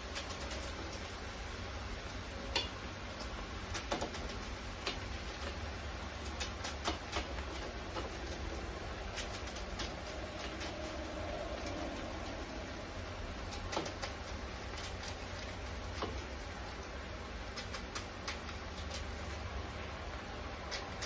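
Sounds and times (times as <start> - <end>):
knife cutting cabbage: 3.6 - 16.6, 17.4 - 19.5
crisp snaps: 17.5 - 19.4, 20.6 - 21.0.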